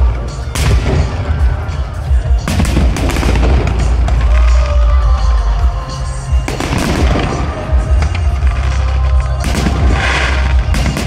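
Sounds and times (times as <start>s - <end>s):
fireworks bangs: 0.0s - 5.3s, 5.9s - 11.0s
deep rumble: 0.0s - 11.0s.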